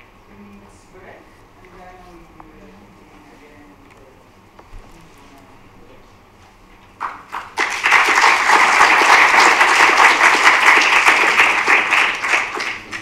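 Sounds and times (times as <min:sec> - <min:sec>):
audience applauding: 0:07.0 - 0:13.0.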